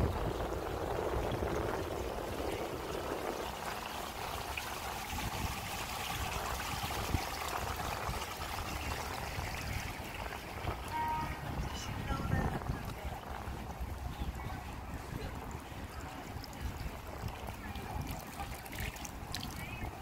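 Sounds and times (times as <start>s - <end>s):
shallow water rippling and trickling: 0.0s - 20.0s.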